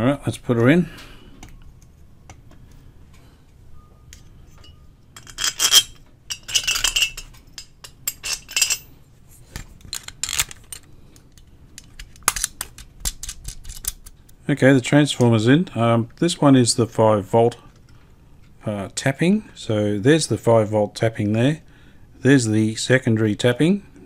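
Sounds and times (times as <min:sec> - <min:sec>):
metal clinking and scraping: 0:04.1 - 0:14.1.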